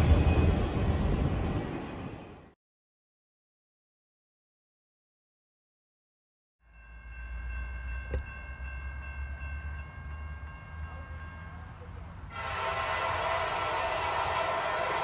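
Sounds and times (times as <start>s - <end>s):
low train rumble: 0.0s - 2.5s, 6.7s - 15.0s
train horn: 12.3s - 15.0s.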